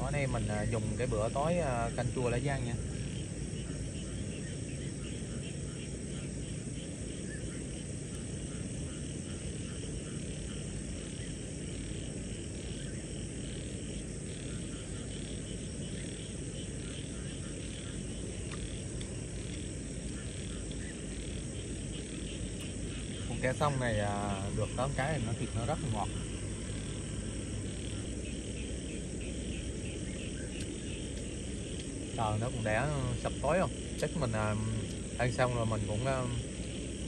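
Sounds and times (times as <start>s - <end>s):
crickets chirping: 0.0s - 37.0s
frogs calling: 0.0s - 37.0s
low rumble: 23.9s - 37.0s.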